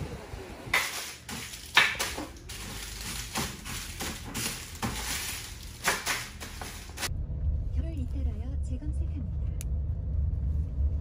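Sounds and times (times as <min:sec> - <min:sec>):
plastic sheeting rustling: 0:00.8 - 0:07.1.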